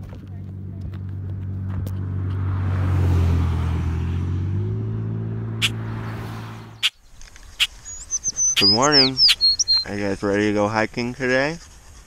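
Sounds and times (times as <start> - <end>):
vehicle passing on highway: 0.4 - 9.8.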